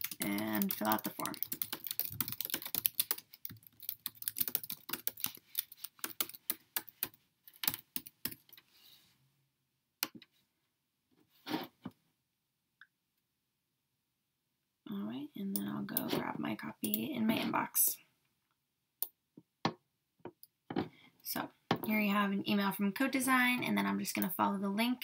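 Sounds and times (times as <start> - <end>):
computer keyboard typing: 0.0 - 8.6.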